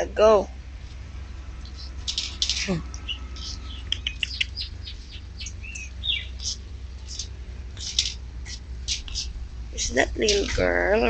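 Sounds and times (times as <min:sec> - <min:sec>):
high bird-like chirps: 0:01.6 - 0:09.4.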